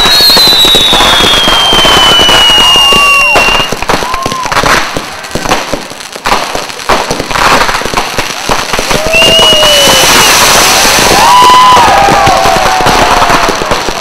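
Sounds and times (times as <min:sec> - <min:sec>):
shrill firework whistles: 0:00.0 - 0:04.7, 0:08.8 - 0:14.0
fireworks bangs and crackles: 0:00.0 - 0:14.0.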